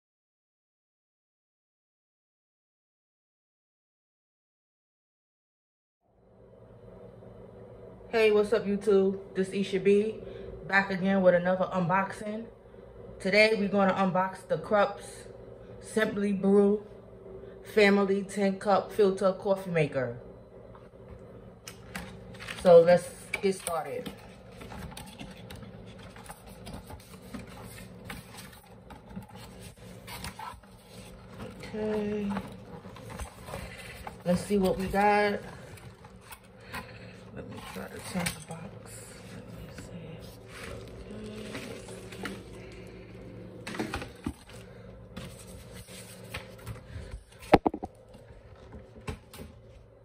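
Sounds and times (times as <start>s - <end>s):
plastic wrapping rustling: 21.8s - 36.8s, 40.4s - 42.8s.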